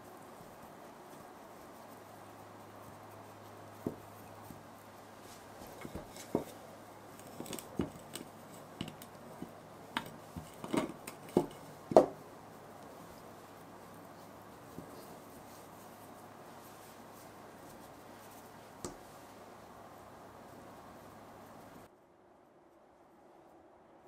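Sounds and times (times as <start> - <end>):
kitchen items tapping and knocking: 10.0 - 12.2.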